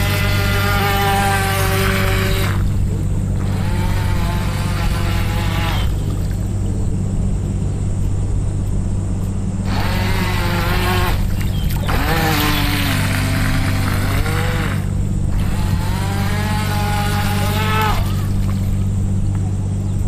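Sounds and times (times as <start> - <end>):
small electric motor whining: 0.0 - 6.4, 9.6 - 19.0
steady low rumble: 0.0 - 20.0.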